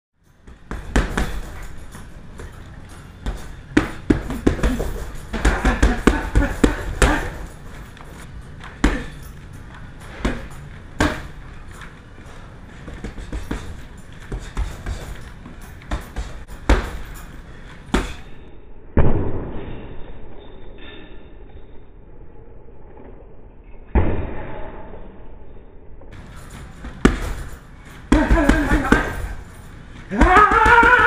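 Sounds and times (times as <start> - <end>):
gloves punching heavy bag: 0.4 - 7.8, 8.7 - 9.4, 10.1 - 11.4, 12.8 - 17.3, 17.9 - 18.4, 26.2 - 31.0.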